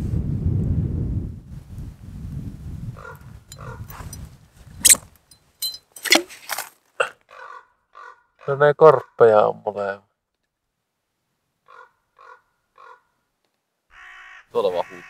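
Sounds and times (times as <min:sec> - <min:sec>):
wind rumble on microphone: 0:00.0 - 0:05.3
ravens croaking: 0:03.0 - 0:04.1, 0:07.0 - 0:09.6, 0:11.6 - 0:13.2, 0:13.9 - 0:15.0.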